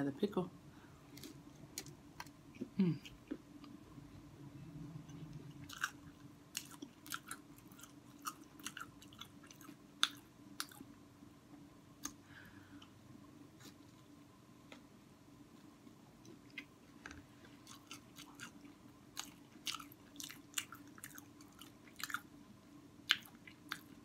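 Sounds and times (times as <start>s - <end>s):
crunchy chewing: 5.1s - 10.9s, 17.5s - 22.3s, 23.0s - 24.0s.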